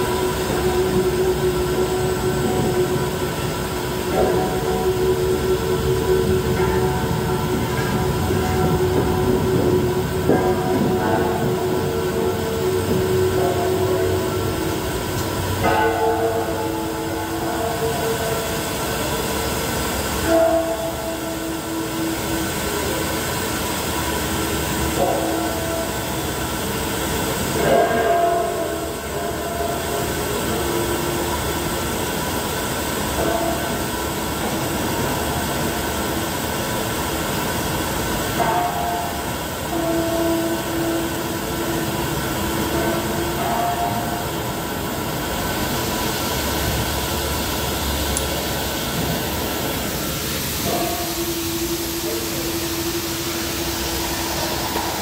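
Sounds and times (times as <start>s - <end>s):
gas rushing hiss: 44.8s - 55.0s.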